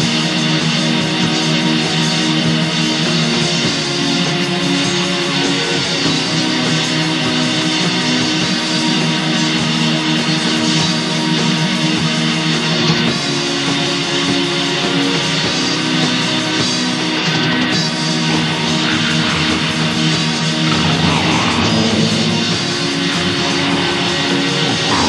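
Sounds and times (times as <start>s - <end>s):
black metal music: 16.8s - 25.0s
electric guitar playing held chords: 17.0s - 25.0s.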